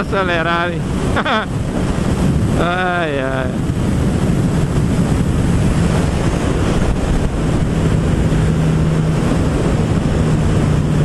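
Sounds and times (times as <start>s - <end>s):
wind rushing over microphone: 0.0s - 11.0s
motorcycle engine running: 3.6s - 11.0s.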